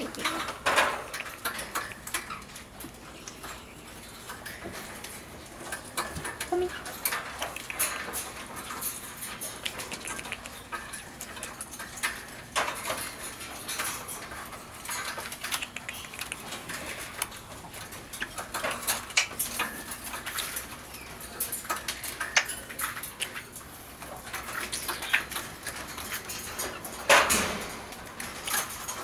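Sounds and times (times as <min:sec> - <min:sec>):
parrot making kissing sounds: 0:09.6 - 0:10.6, 0:15.5 - 0:16.5.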